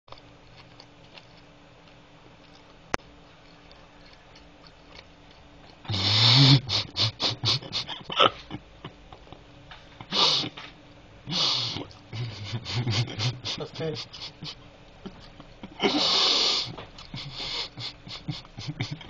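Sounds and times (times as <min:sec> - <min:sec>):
person laughing breathily: 0:05.9 - 0:10.6, 0:11.3 - 0:19.0.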